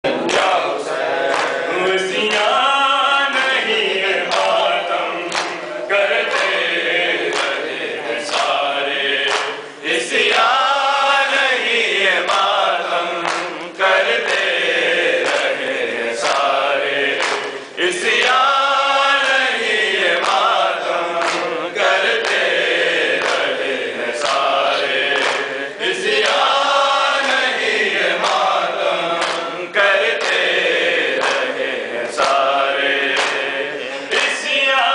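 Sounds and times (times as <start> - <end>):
men's group chanting in unison: 0.1 - 34.9
chest-beating slaps: 21.2 - 22.5.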